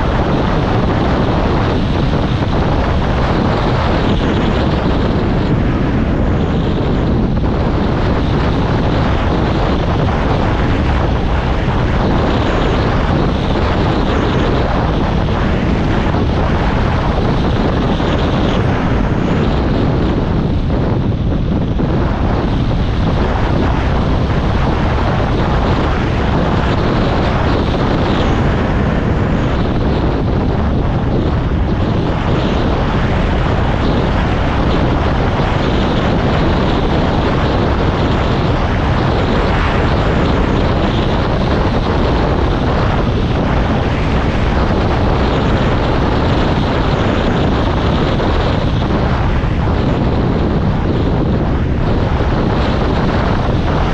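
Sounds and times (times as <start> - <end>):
loud steady rushing noise: 0.0 - 53.9.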